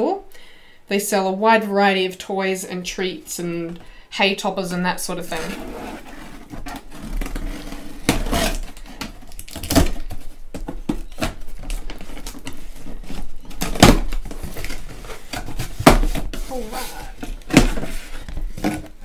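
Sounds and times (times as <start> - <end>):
cardboard flaps rustling and scraping: 5.2 - 19.0
cardboard ripping: 5.3 - 10.3
packing tape slit and pulled: 6.7 - 10.2.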